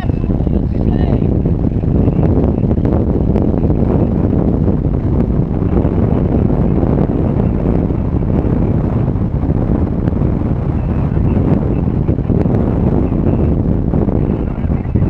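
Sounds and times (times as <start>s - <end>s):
strong wind buffeting microphone: 0.0s - 15.0s.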